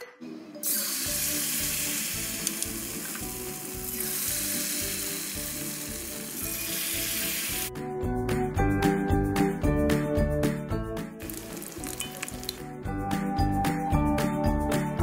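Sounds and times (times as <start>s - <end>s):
batter sizzling in hot oil: 0.6s - 7.7s, 11.2s - 12.6s.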